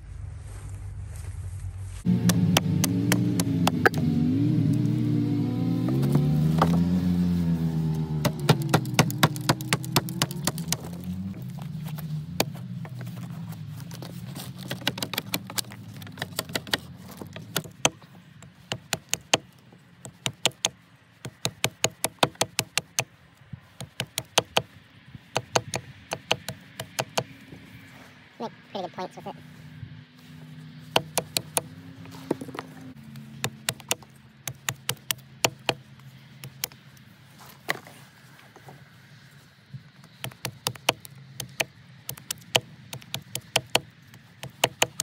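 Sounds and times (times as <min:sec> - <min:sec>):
passing vehicle engine: 0:00.0 - 0:18.6, 0:25.9 - 0:34.5
hatchet chopping wood: 0:02.2 - 0:04.1, 0:05.8 - 0:07.0, 0:08.0 - 0:11.1, 0:14.5 - 0:18.0, 0:18.6 - 0:23.1, 0:23.8 - 0:24.7, 0:25.3 - 0:27.3, 0:30.9 - 0:31.7, 0:33.4 - 0:36.8, 0:40.2 - 0:45.0.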